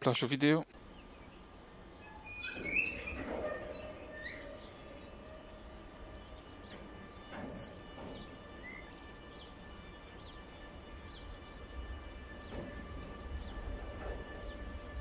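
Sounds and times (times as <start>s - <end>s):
songbirds chirping: 0.0s - 15.0s
freight train rumbling: 0.8s - 15.0s.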